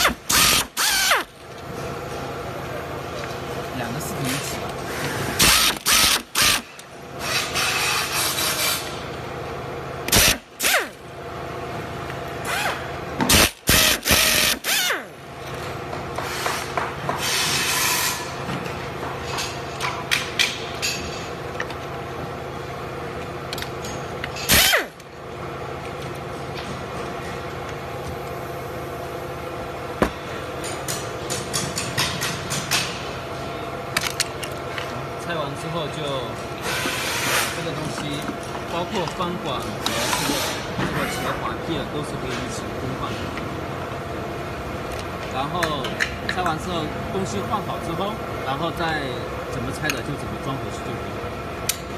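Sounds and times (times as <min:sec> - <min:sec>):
cordless drill running: 0:00.0 - 0:01.3, 0:05.4 - 0:06.6, 0:13.4 - 0:15.0
steady hum: 0:00.0 - 0:51.9.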